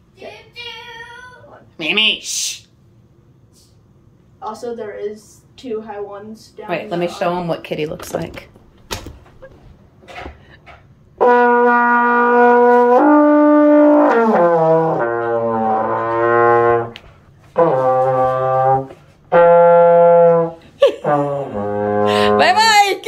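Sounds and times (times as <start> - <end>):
trombone long notes: 11.2 - 17.0, 17.6 - 22.5.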